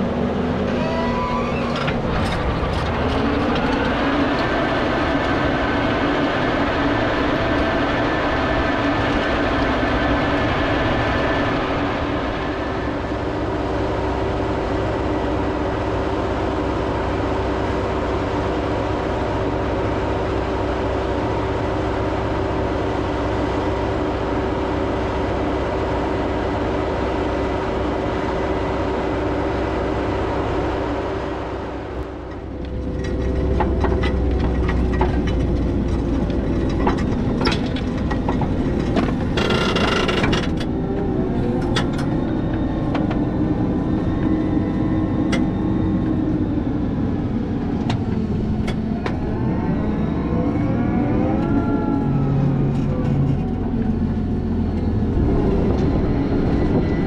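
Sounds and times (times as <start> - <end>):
tractor engine drone: 0.0 - 57.0
planter clicks and rattles: 32.3 - 40.8.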